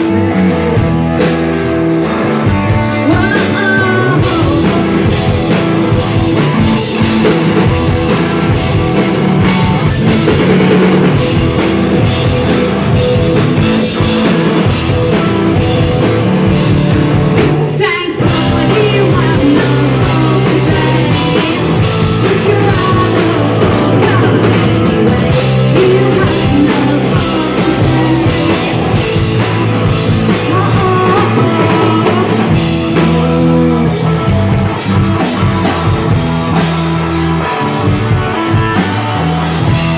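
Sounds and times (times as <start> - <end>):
bass guitar: 0.0 - 39.9
drum kit: 0.0 - 39.9
electric guitar: 0.0 - 39.9
vocals: 2.4 - 8.6, 17.4 - 35.8.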